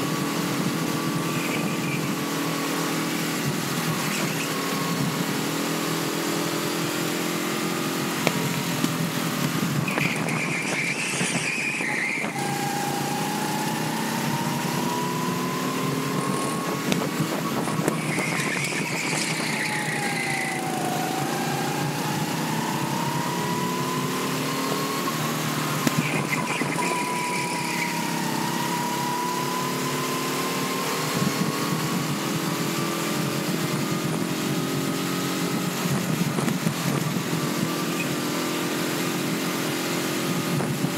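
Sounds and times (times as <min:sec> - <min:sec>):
go-kart engine racing: 0:00.0 - 0:40.9
wind noise: 0:08.4 - 0:24.1, 0:31.0 - 0:38.0, 0:40.4 - 0:40.9.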